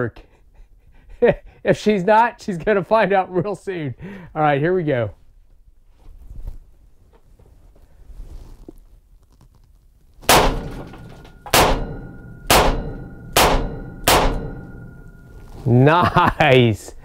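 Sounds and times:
revolver shots ringing in room: 10.2 - 15.6.

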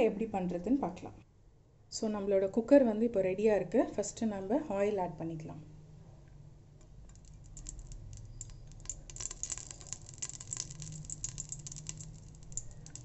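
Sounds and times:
oil crackling and popping: 6.8 - 13.0.

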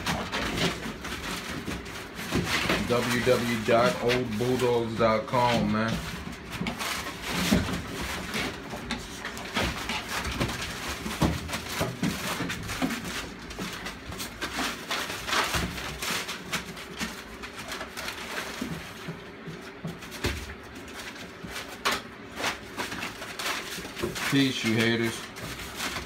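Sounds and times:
dogs rustling newspaper: 0.0 - 26.0.

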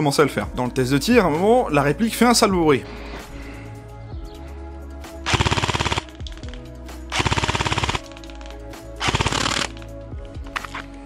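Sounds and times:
faint background music: 0.0 - 11.0
airsoft gun full-auto bursts: 5.2 - 6.2, 7.1 - 8.2, 9.0 - 9.8.

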